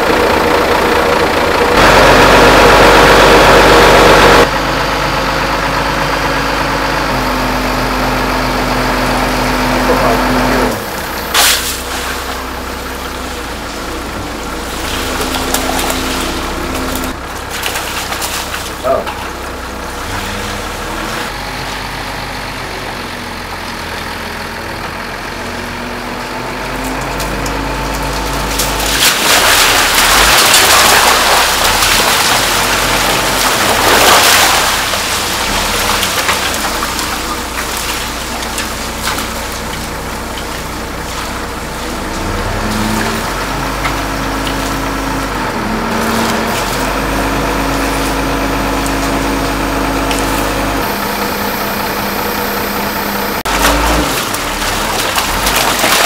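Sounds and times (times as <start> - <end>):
engine running: 0.0 - 56.0
fish and ice dumped out: 11.3 - 12.5, 28.5 - 40.2, 53.5 - 56.0.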